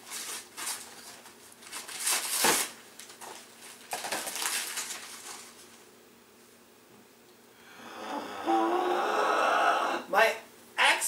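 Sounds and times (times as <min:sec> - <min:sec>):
wrapping paper rustling: 0:00.0 - 0:05.9.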